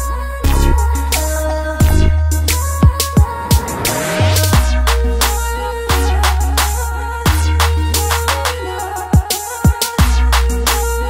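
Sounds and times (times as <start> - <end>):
background music with deep bass: 0.0 - 11.0.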